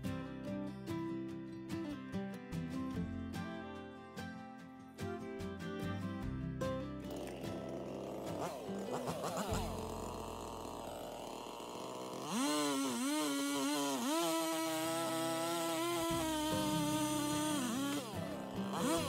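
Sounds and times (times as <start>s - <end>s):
chainsaw cutting wood: 7.0s - 19.0s.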